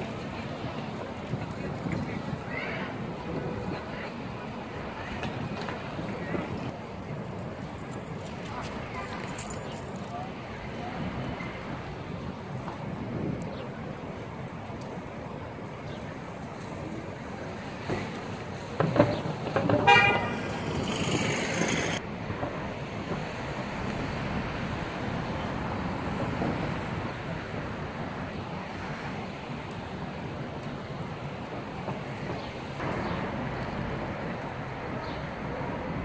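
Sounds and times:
street traffic: 0:00.0 - 0:36.0
vehicle horn honk: 0:19.8 - 0:20.6.

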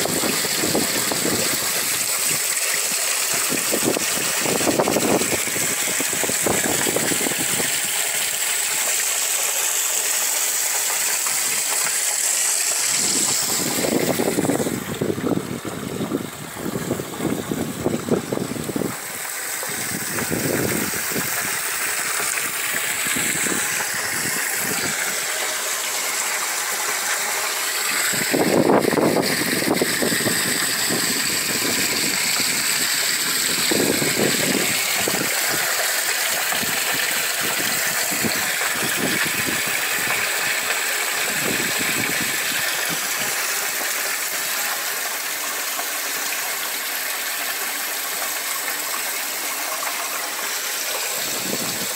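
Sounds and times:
water running and splashing: 0:00.0 - 0:51.9
wind rumble on microphone: 0:03.4 - 0:07.9, 0:12.9 - 0:19.0, 0:19.7 - 0:21.6, 0:28.1 - 0:32.8, 0:33.4 - 0:35.6, 0:36.6 - 0:40.1, 0:51.2 - 0:51.9.

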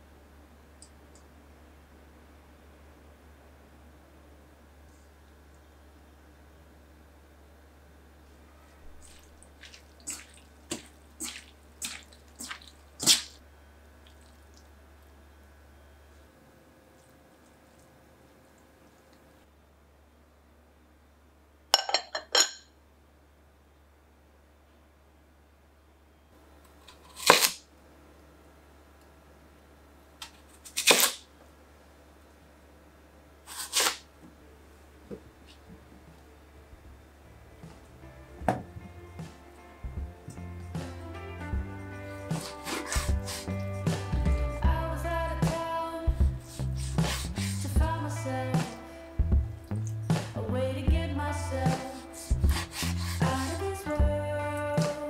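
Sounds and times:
wet squelches in a bowl: 0:08.9 - 0:13.4, 0:14.0 - 0:14.8
knife chopping radish on board: 0:42.3 - 0:44.0, 0:46.8 - 0:47.4, 0:52.3 - 0:53.5.

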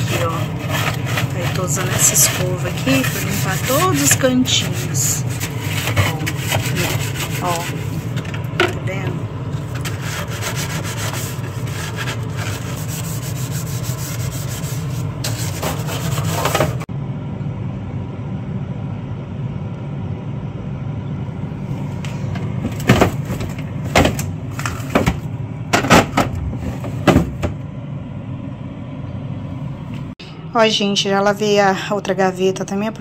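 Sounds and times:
brush scrubbing plastic drawer: 0:00.0 - 0:08.8, 0:09.5 - 0:16.9, 0:22.6 - 0:25.2
steady low hum: 0:00.0 - 0:33.0.

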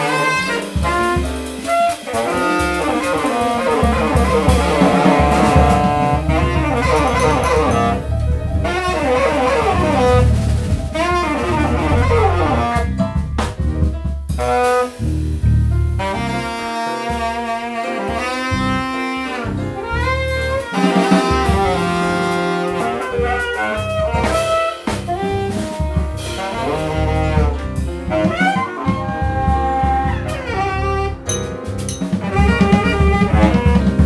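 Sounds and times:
double bass: 0:00.0 - 0:34.0
drum kit: 0:00.0 - 0:34.0.

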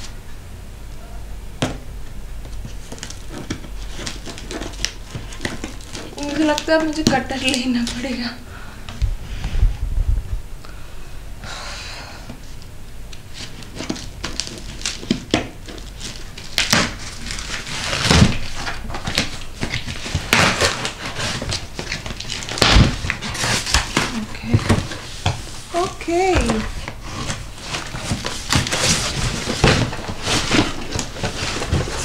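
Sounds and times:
plastic packaging crinkling: 0:02.5 - 0:08.4, 0:13.3 - 0:32.0.

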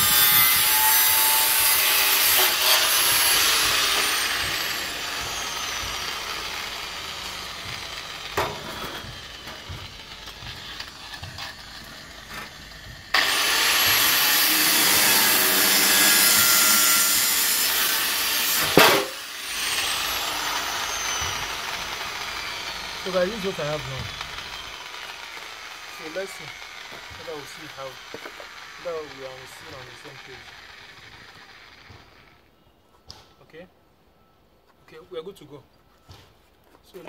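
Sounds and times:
angle grinder cutting sheet metal: 0:00.0 - 0:32.4
angle grinder whine: 0:00.0 - 0:32.5.

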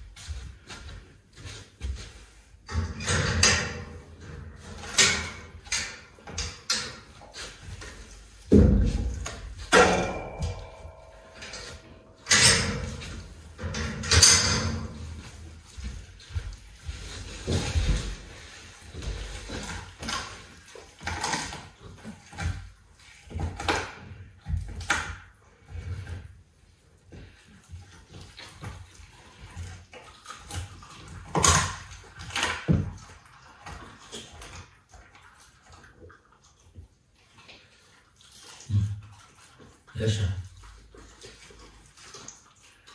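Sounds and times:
person shuffling on wooden floor: 0:00.0 - 0:02.6, 0:14.9 - 0:19.6
leopard chewing meat: 0:00.0 - 0:42.9.

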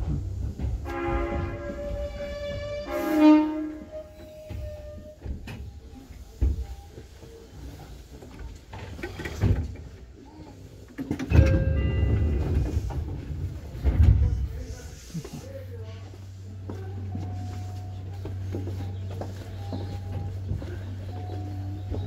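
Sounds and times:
train brakes squealing: 0:00.9 - 0:05.9.

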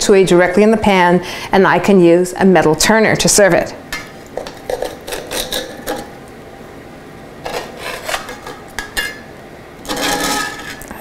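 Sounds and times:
metal utensils scraping skillet: 0:04.4 - 0:06.1, 0:07.5 - 0:10.9.

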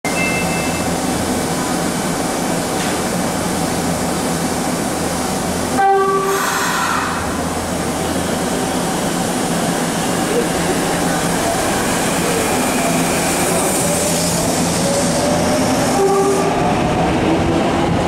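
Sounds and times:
train running hum: 0:00.1 - 0:18.0
train horn blast: 0:05.7 - 0:07.2, 0:15.9 - 0:16.6.

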